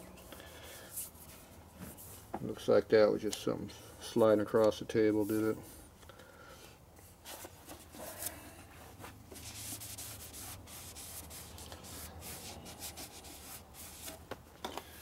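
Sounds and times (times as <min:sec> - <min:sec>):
cloth rag rubbing metal: 0:09.4 - 0:14.2.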